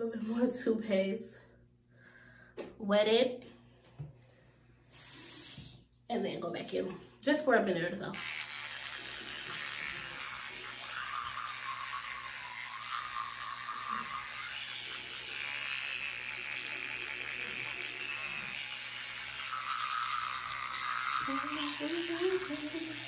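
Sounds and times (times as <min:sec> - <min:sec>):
electric toothbrush brushing teeth: 0:08.0 - 0:23.0.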